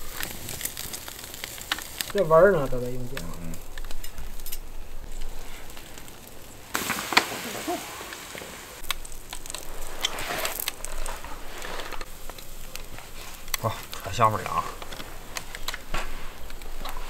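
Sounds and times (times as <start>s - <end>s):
meat sizzling on a grill: 0.0s - 17.0s.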